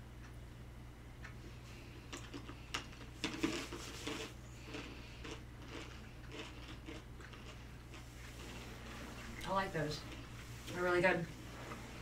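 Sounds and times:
steady low hum: 0:00.0 - 0:12.0
crunching and chewing snacks: 0:01.9 - 0:08.6.

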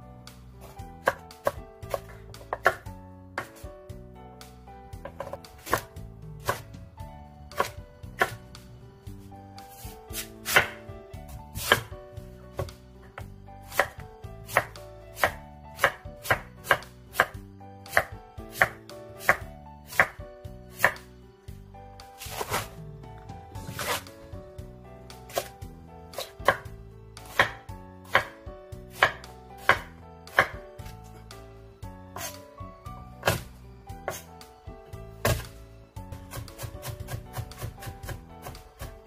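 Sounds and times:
knife chopping on wooden board: 0:00.6 - 0:03.6, 0:05.0 - 0:06.7, 0:07.5 - 0:08.4, 0:09.7 - 0:11.9, 0:12.5 - 0:20.2, 0:20.8 - 0:21.0, 0:22.2 - 0:22.7, 0:23.6 - 0:24.1, 0:25.3 - 0:25.5, 0:26.1 - 0:31.0, 0:32.2 - 0:32.4, 0:33.2 - 0:33.5, 0:34.1 - 0:34.3, 0:35.2 - 0:35.5, 0:36.2 - 0:39.0.

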